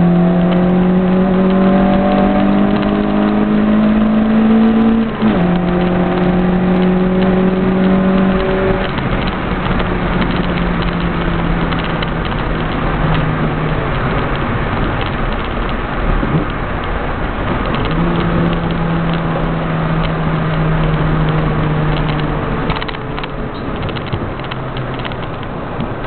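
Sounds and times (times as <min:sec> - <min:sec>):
car engine running: 0:00.0 - 0:26.0
road and wind noise: 0:00.0 - 0:26.0
clicks and rattles: 0:04.9 - 0:13.3, 0:13.9 - 0:19.3, 0:20.8 - 0:26.0.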